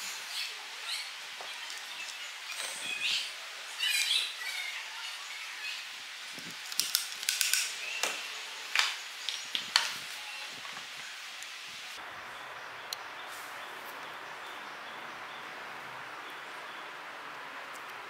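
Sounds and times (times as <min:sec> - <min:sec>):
parts clicking and tapping on wood: 0:06.7 - 0:10.0.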